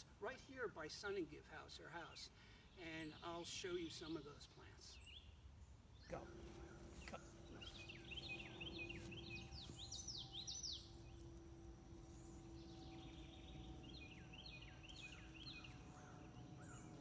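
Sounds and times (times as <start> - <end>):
songbird chirping: 0.2 - 17.0
faint low hum: 6.0 - 17.0.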